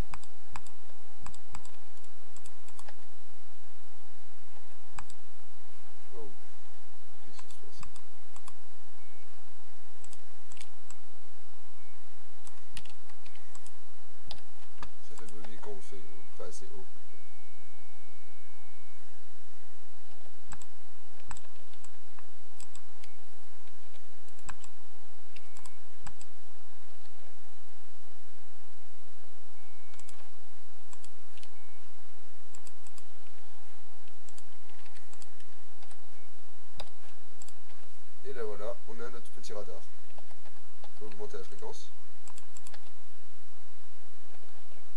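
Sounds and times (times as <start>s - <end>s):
low steady hum: 0.0s - 44.9s
computer keyboard keys clicking: 0.1s - 3.0s, 20.5s - 22.0s, 23.7s - 24.7s, 34.3s - 36.0s
mouse clicks: 0.1s - 3.1s, 7.4s - 8.6s, 10.0s - 11.0s, 12.4s - 15.8s, 20.1s - 24.7s, 25.3s - 26.3s, 29.9s - 30.3s, 32.5s - 33.4s, 34.0s - 36.0s, 36.8s - 37.9s, 40.1s - 42.9s.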